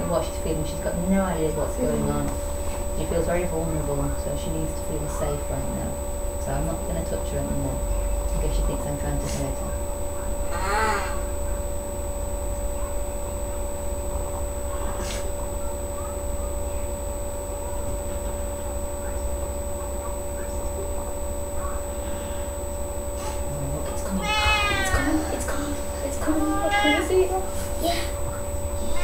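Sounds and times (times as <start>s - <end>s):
electrical hum with high whine: 0.0s - 29.0s.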